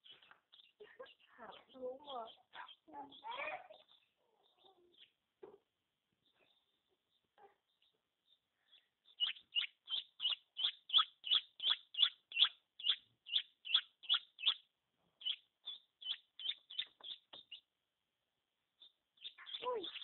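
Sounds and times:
chicks peeping: 0:09.0 - 0:14.6, 0:15.2 - 0:17.7.

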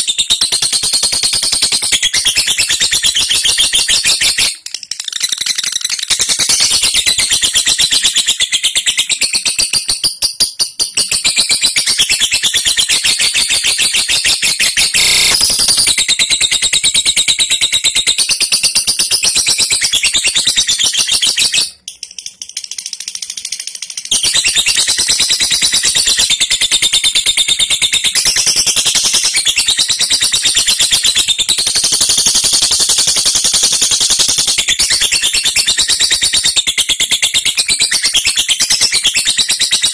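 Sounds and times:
lovebird chattering: 0:02.0 - 0:16.6.

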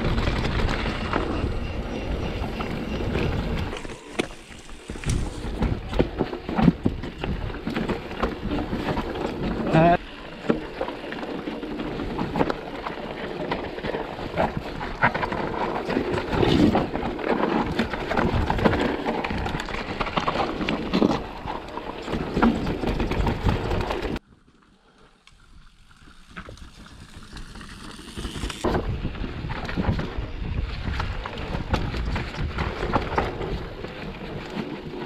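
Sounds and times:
wind buffeting microphone: 0:00.0 - 0:10.0, 0:28.6 - 0:35.0
tyres crunching on trail: 0:00.0 - 0:24.2
bike rattling: 0:00.0 - 0:24.3, 0:25.3 - 0:35.0.

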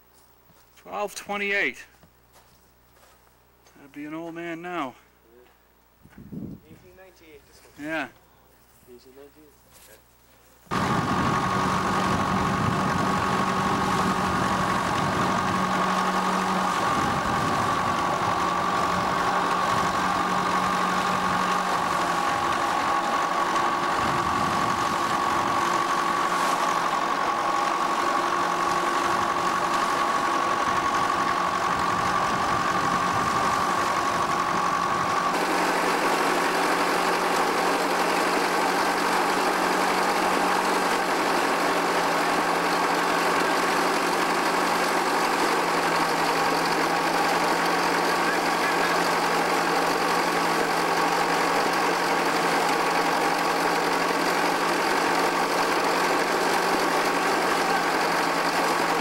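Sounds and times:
high hum: 0:10.7 - 0:35.8
engine running: 0:10.7 - 0:59.0
threshing mill running: 0:10.7 - 0:59.0.

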